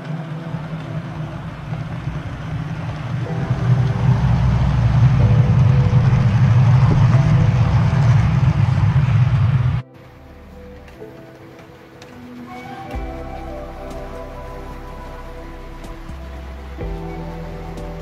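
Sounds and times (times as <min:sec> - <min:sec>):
model train running on track: 0:00.0 - 0:09.8.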